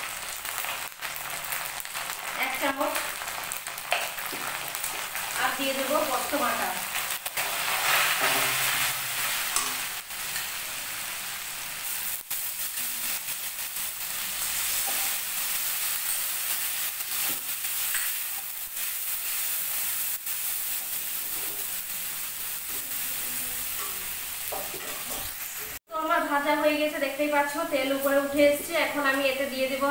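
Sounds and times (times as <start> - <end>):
onions sizzling in oil: 0.0 - 29.9
metal spatula scraping pan: 7.4 - 10.6.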